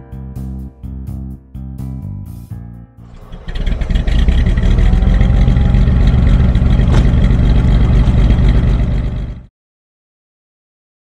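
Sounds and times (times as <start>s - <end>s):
engine exhaust rumble: 3.0s - 9.5s.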